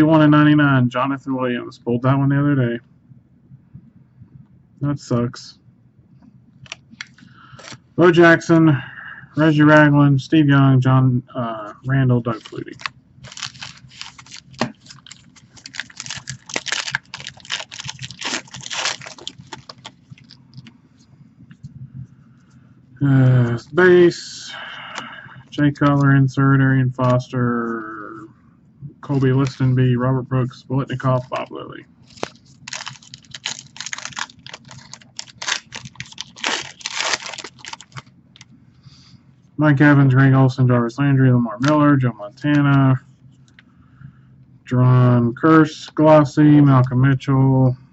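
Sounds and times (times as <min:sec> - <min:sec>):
plastic wrapper crinkling: 0:06.6 - 0:07.8, 0:12.3 - 0:20.7, 0:29.1 - 0:29.8, 0:31.1 - 0:38.5.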